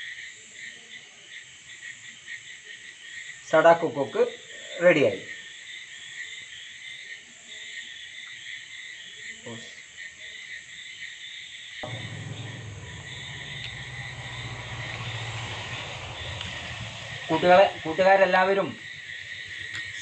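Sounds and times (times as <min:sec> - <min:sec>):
crickets chirring: 0:00.0 - 0:20.0
low steady hum: 0:11.8 - 0:20.0.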